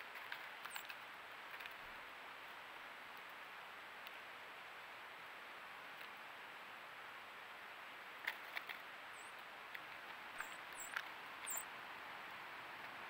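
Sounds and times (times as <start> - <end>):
high bird chirps: 10.4 - 11.7.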